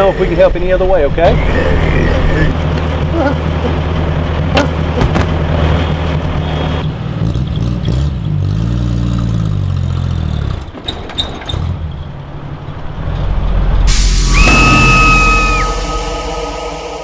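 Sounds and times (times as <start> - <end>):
pickup truck engine idling and revving: 0.0 - 10.8
truck driving away: 0.0 - 17.0.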